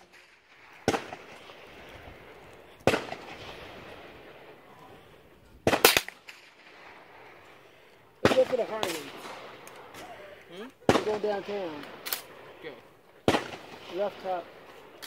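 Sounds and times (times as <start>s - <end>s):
gunshots with short echo: 13.2s - 14.4s.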